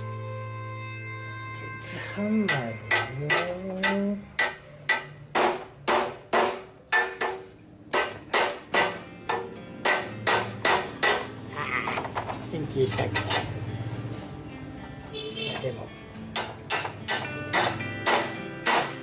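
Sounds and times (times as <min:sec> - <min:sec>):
hammer striking steel frame: 0:02.2 - 0:11.4, 0:16.3 - 0:19.0.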